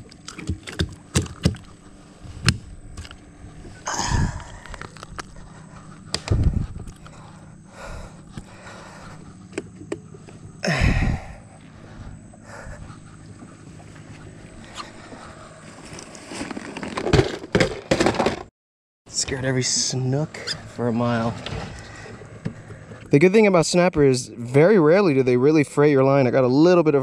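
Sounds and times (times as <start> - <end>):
faint low hum: 0.0 - 17.8.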